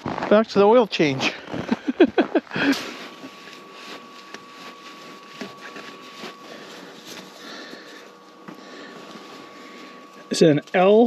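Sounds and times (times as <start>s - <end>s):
thin steady high tone: 1.2s - 11.0s
gloved hand rustling: 2.1s - 10.3s.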